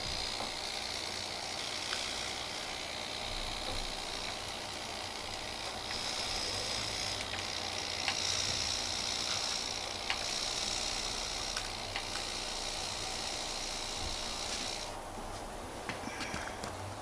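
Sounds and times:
toy motor high whine: 0.0 - 15.0
sharp clicks: 7.2 - 8.3, 9.2 - 10.4, 11.5 - 12.3.

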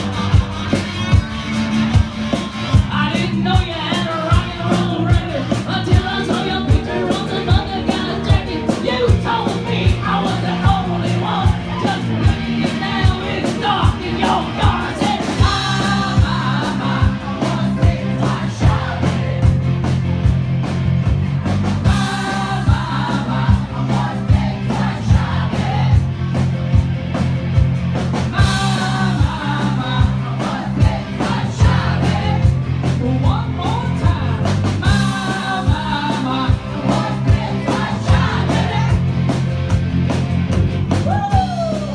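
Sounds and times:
drum kit beat: 0.0 - 41.9
person singing: 2.9 - 18.8, 28.3 - 30.4, 33.0 - 37.3.

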